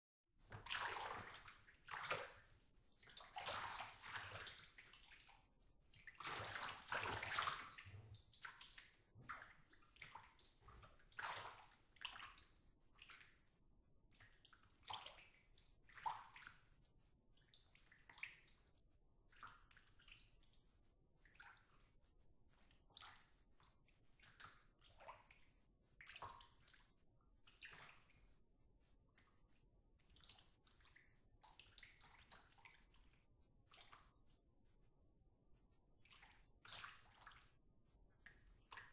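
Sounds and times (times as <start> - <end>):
bath water sloshing and splashing: 0.5 - 13.5, 36.0 - 37.6.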